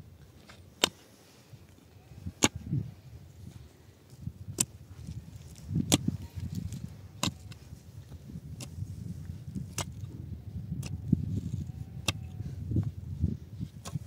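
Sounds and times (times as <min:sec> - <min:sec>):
mattock striking stony soil: 0:00.4 - 0:01.1, 0:04.2 - 0:10.2, 0:13.7 - 0:14.0.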